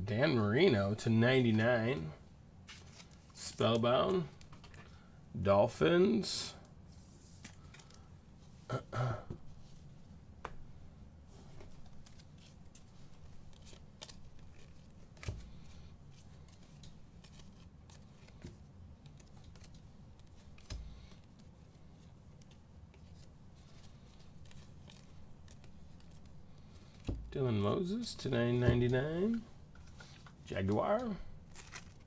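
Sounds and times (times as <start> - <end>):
cards clicking and rustling: 7.3 - 8.0, 11.6 - 32.0.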